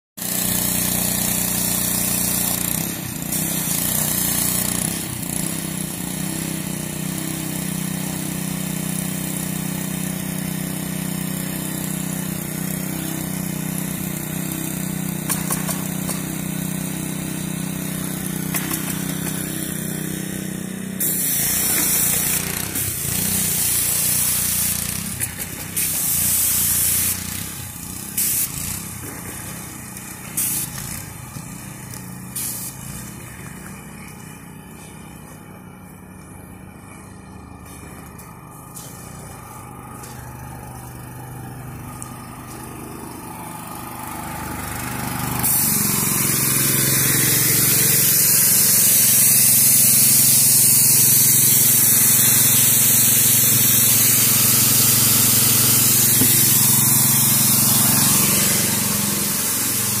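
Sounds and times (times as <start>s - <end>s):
engine running steadily: 0.2s - 60.0s
loud bursts of hiss: 21.0s - 28.9s, 30.3s - 31.3s, 32.3s - 33.0s, 45.4s - 60.0s.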